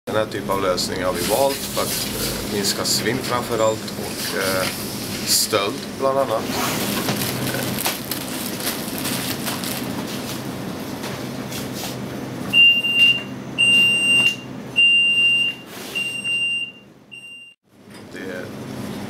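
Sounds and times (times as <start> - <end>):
electronic alarm buzzer beeping: 12.6 - 17.6.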